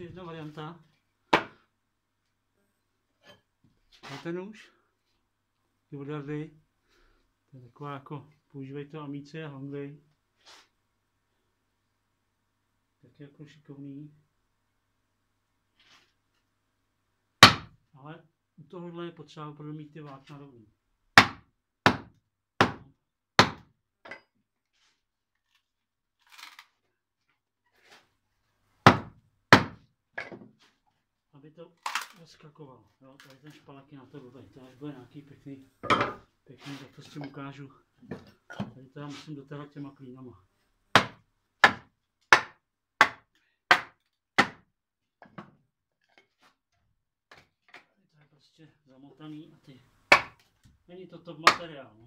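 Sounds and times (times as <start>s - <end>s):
rustle of handling wood: 15.7s - 16.5s, 24.6s - 28.6s, 46.0s - 46.6s
mallet striking axe: 17.4s - 17.7s, 50.1s - 50.4s, 51.5s - 51.7s
mallet striking wedge into log: 17.4s - 17.7s, 23.4s - 23.7s, 41.0s - 44.6s, 50.1s - 50.4s.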